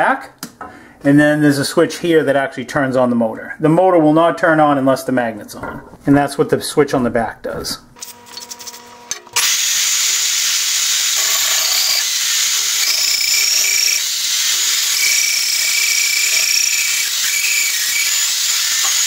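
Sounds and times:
magnetic drill whining: 0:08.0 - 0:19.0.

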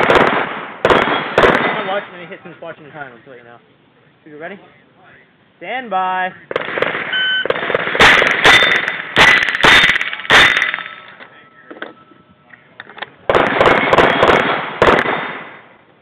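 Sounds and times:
rifle shots: 0:00.0 - 0:02.1, 0:06.5 - 0:11.2, 0:13.3 - 0:15.8
steel plates ringing: 0:08.5 - 0:09.0.

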